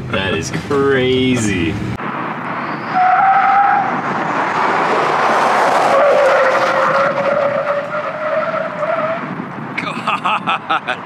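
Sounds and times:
tyre and road noise: 0:00.0 - 0:11.0
tires squealing on pavement: 0:02.0 - 0:09.6.

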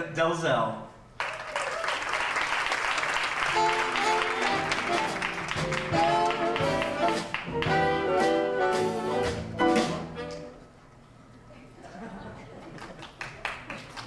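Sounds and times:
audience applause: 0:01.2 - 0:08.1, 0:12.6 - 0:14.0
instrumental ensemble music: 0:03.4 - 0:11.0.

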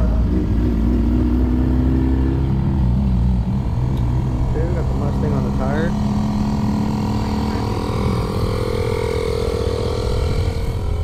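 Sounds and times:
held hum: 0:00.0 - 0:11.0
car engines idling: 0:02.4 - 0:11.0.

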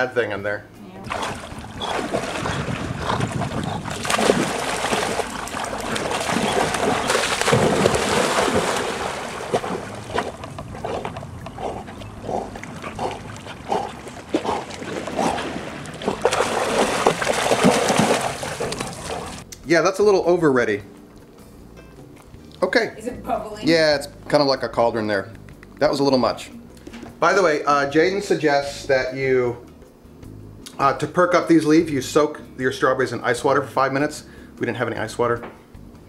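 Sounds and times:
dogs splashing through water: 0:01.0 - 0:19.4.

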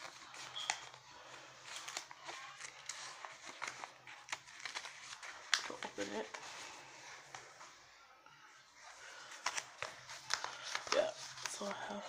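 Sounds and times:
rustling of handled things: 0:00.0 - 0:07.9.

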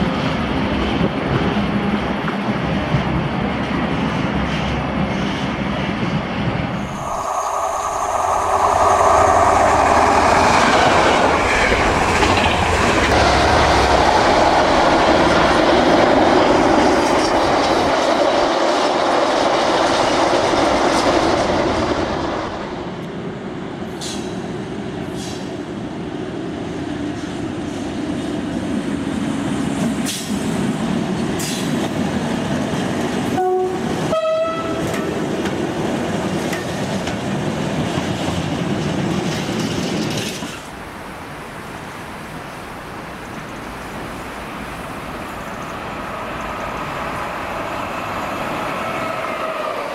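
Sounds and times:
freight train running on rails: 0:00.0 - 0:49.9
two-tone train horn: 0:33.3 - 0:35.2.

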